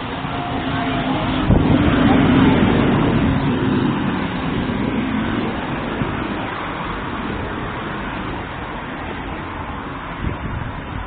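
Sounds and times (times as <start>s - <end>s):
road traffic rushing: 0.0s - 11.0s.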